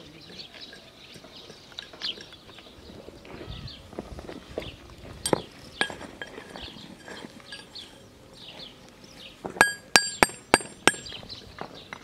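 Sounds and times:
small birds chirping: 0.0 - 12.0
stone clacks: 5.3 - 6.5, 9.6 - 11.2
hammer striking stone: 9.6 - 11.2.

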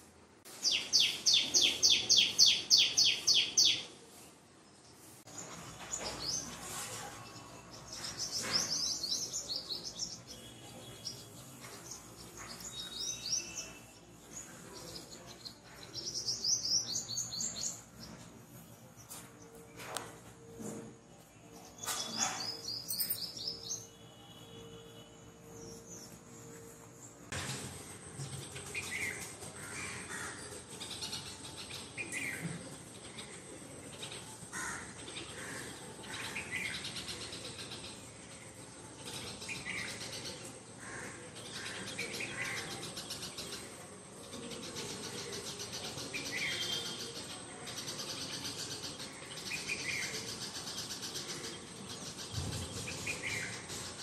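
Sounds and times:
birds calling: 28.2 - 54.0.

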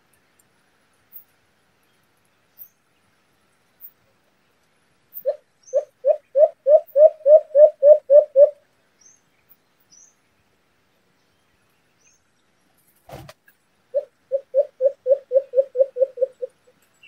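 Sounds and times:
small birds chirping: 0.0 - 13.0, 13.6 - 17.0
dove hooting: 5.2 - 8.6, 13.9 - 16.6.

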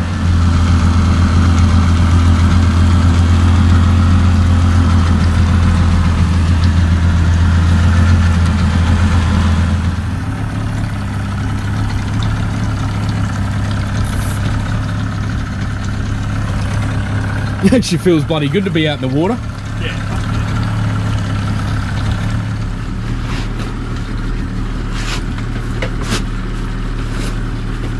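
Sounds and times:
outboard motor idling: 0.0 - 27.9.

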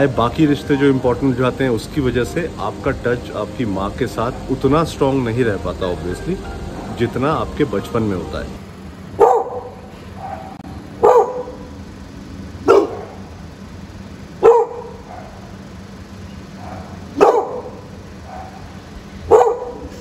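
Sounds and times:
dog barking: 9.2 - 11.7, 12.6 - 13.3, 14.4 - 15.5, 16.6 - 20.0.

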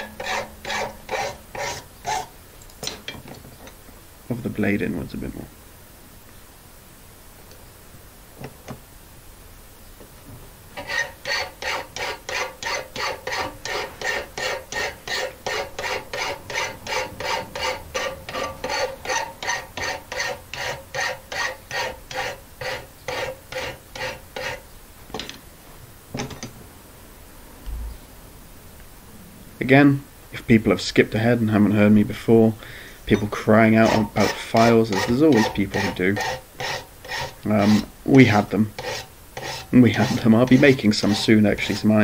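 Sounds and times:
file rasping on iron: 0.0 - 2.3, 10.8 - 24.6, 33.1 - 42.0.

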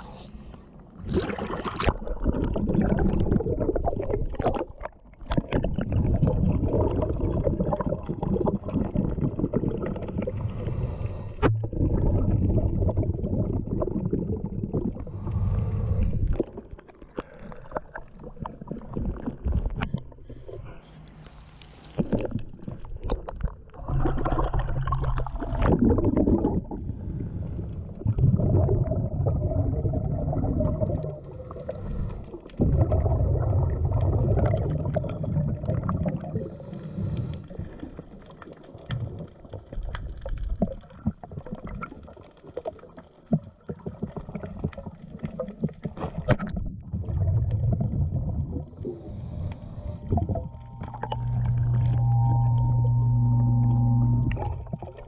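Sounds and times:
muffled underwater rumbling surges: 0.0 - 37.8, 46.5 - 55.0.

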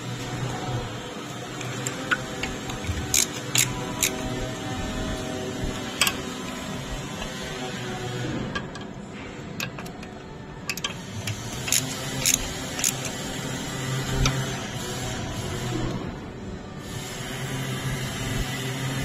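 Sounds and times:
steady background hum: 0.0 - 19.0
hand ratchet clicking: 1.6 - 4.6, 5.8 - 7.4, 9.6 - 13.4.

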